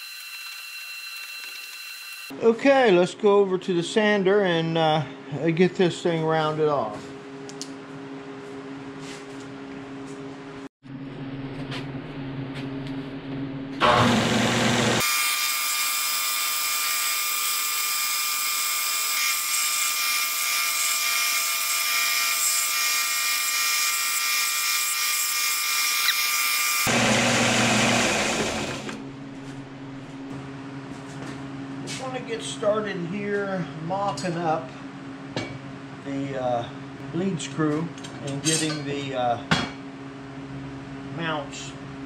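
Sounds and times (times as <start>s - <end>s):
belt sander grinding metal: 13.8s - 29.0s.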